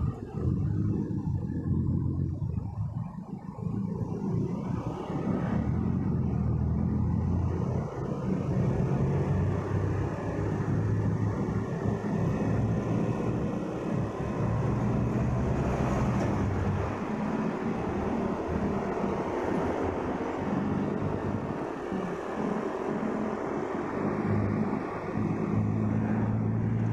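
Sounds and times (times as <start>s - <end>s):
motorcycle engine running: 0.0s - 15.3s
motorcycle traffic hum and rumble: 0.0s - 26.9s.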